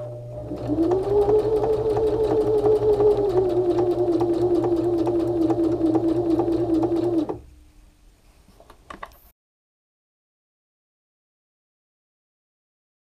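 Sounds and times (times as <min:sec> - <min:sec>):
sewing machine motor whine: 0:00.4 - 0:07.4.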